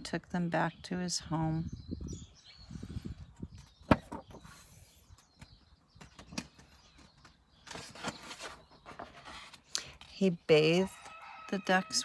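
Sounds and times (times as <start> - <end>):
paper pages rustling: 7.6 - 10.1.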